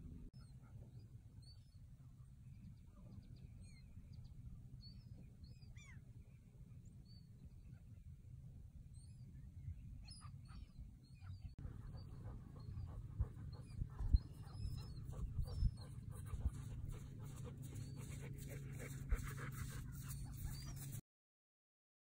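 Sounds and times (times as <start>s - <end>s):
dog panting: 11.6s - 21.0s.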